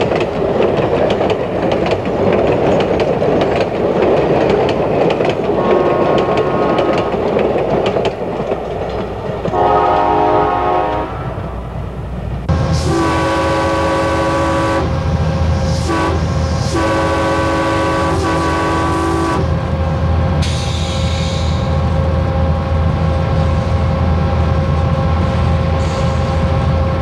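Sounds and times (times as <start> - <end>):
locomotive engine drone: 0.0 - 27.0
locomotive air horn chord: 5.6 - 7.1, 9.5 - 11.4, 12.8 - 14.9, 15.8 - 19.5.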